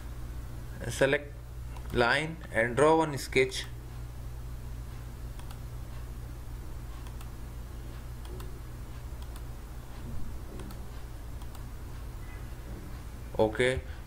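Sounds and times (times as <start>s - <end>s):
steady low hum: 0.0s - 14.0s
computer mouse clicks: 1.7s - 2.0s, 5.4s - 5.6s, 7.0s - 7.4s, 8.2s - 8.6s, 9.2s - 9.5s, 10.5s - 10.8s, 11.4s - 11.7s.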